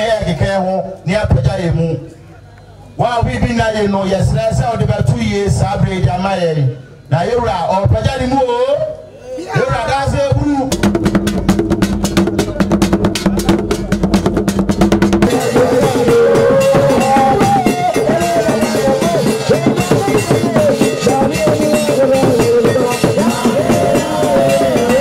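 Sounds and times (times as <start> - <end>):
drums beaten in quick strokes: 10.3 - 25.0
wavering melody: 10.7 - 25.0.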